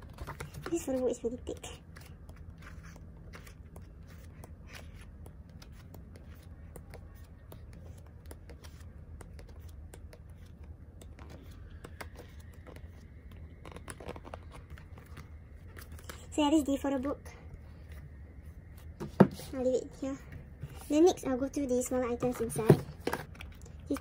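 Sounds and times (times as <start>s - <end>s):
book pages turning: 0.0s - 16.3s, 22.3s - 24.0s
low steady hum: 0.0s - 24.0s.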